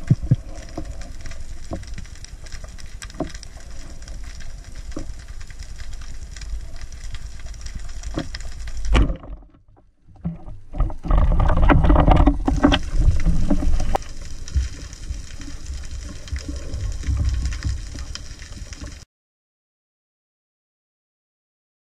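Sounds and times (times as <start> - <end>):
underwater clicks and knocks: 0.0 - 5.1, 7.0 - 19.0
underwater low rumble: 0.0 - 19.0
churning water: 7.7 - 19.0.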